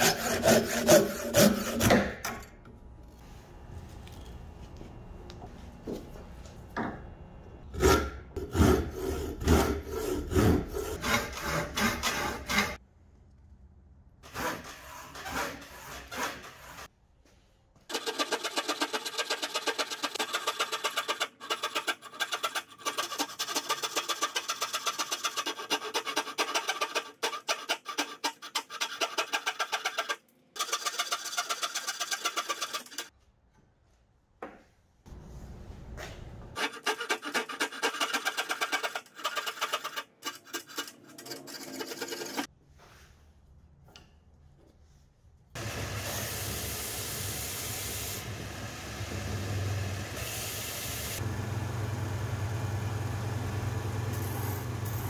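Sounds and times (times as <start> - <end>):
hand saw cutting wood: 0.0 - 2.2, 7.8 - 12.8, 14.2 - 16.9, 17.9 - 33.1, 36.6 - 42.5
belt sander running: 51.0 - 55.0.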